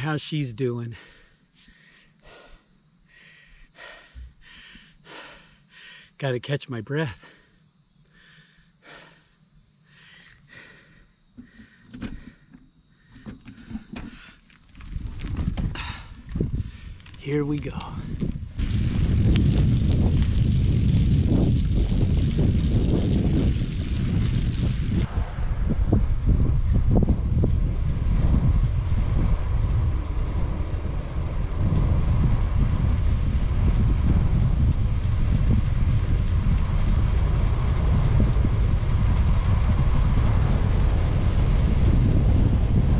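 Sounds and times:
man breathing hard: 0:00.9 - 0:06.2, 0:07.2 - 0:14.5, 0:15.6 - 0:17.0
wind rumble on microphone: 0:13.2 - 0:42.9.

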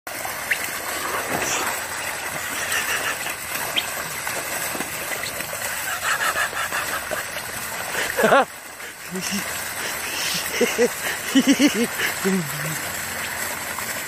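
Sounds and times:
water gushing and splashing: 0:00.1 - 0:14.0.

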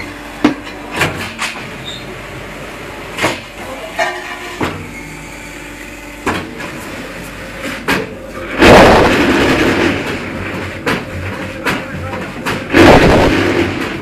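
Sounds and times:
block-making machine hum: 0:00.0 - 0:14.0
loud noisy burst: 0:08.5 - 0:10.3, 0:12.7 - 0:14.0.

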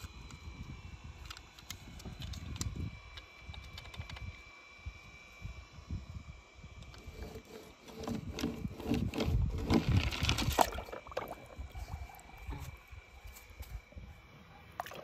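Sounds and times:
water splashing in a plastic tub: 0:10.4 - 0:11.6, 0:14.8 - 0:15.0.

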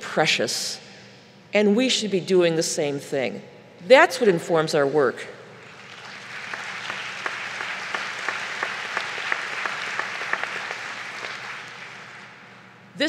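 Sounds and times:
audience applauding: 0:05.7 - 0:12.6.

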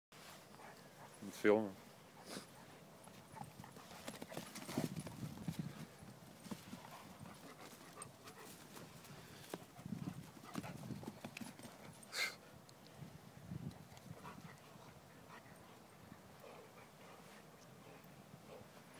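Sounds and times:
running paws on turf: 0:00.2 - 0:12.0.

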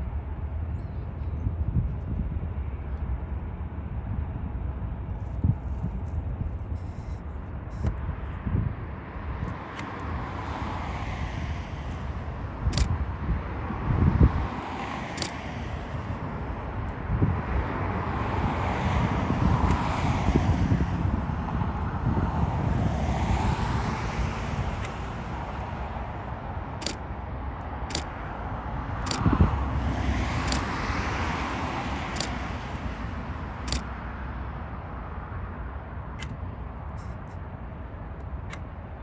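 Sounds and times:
wind on microphone: 0:00.0 - 0:34.0
cars passing on freeway: 0:00.0 - 0:39.0
sharp high ticks: 0:12.6 - 0:13.0, 0:15.1 - 0:15.5, 0:26.7 - 0:28.2, 0:29.0 - 0:29.4, 0:30.4 - 0:30.8, 0:32.1 - 0:32.9, 0:33.6 - 0:33.9.

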